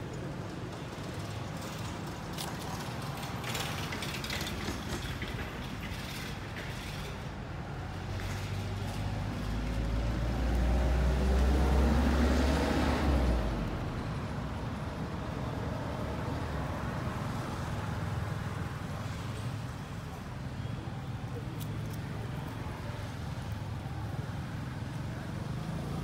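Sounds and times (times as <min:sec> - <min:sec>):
outdoor background noise: 0:00.0 - 0:26.0
vehicle passing by: 0:08.4 - 0:14.1.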